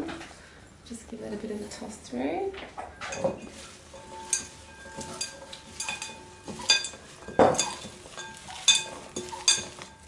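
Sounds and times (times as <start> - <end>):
utensils clinking against bowl: 2.8 - 10.0
salad leaves rustling: 3.0 - 10.0.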